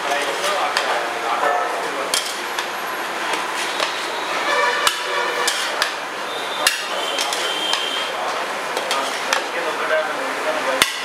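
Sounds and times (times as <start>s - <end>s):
spatula scraping rice in pot: 4.8s - 5.8s.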